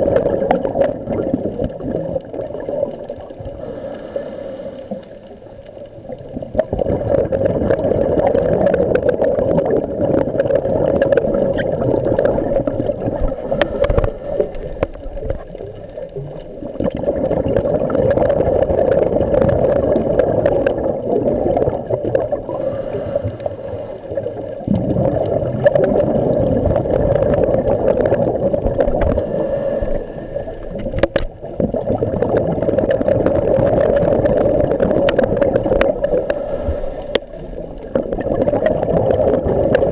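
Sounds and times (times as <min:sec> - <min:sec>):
gurgling exhaled bubbles: 0:00.0 - 0:39.9
diver inhaling through regulator: 0:03.0 - 0:05.9, 0:11.3 - 0:16.8, 0:22.4 - 0:24.7, 0:28.8 - 0:31.3, 0:35.8 - 0:38.2.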